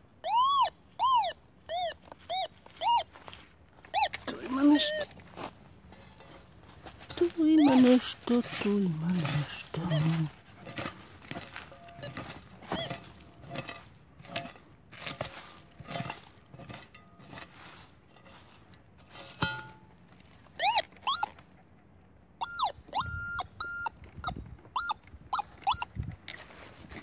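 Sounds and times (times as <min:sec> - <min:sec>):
metal detector warbling beeps: 0:00.2 - 0:03.1, 0:03.9 - 0:05.1, 0:07.2 - 0:10.3, 0:11.7 - 0:13.7, 0:20.6 - 0:21.3, 0:22.4 - 0:25.9
digging tool striking soil: 0:06.0 - 0:19.9.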